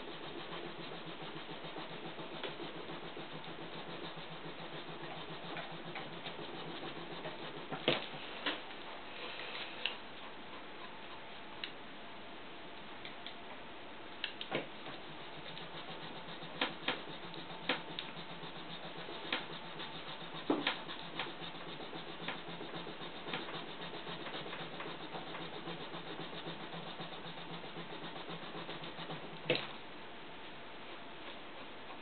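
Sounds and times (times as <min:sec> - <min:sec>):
dry rubbing on wood: 0:00.0 - 0:08.2, 0:14.8 - 0:29.6.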